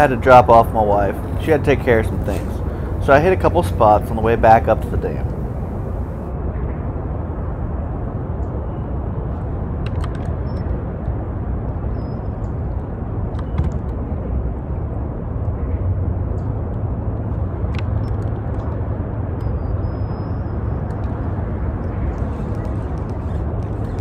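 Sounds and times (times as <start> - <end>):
low outdoor rumble: 0.0 - 9.8, 13.9 - 24.0.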